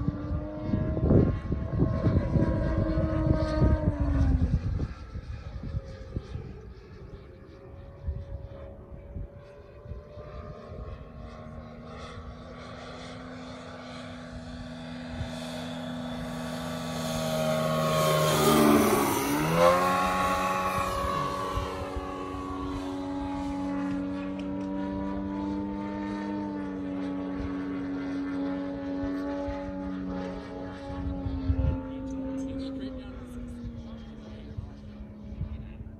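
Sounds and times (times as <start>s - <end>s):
model plane engine and propeller: 0.0s - 35.9s.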